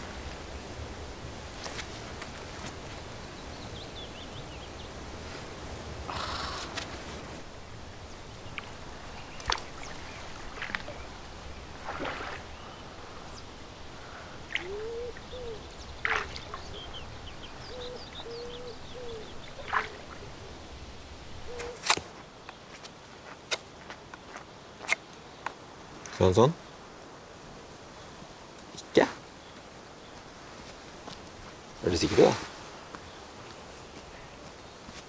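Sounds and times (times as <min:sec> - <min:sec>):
birds chirping: 0:03.1 - 0:05.1, 0:06.0 - 0:21.8
wading in shallow water: 0:07.9 - 0:17.7, 0:19.3 - 0:21.4.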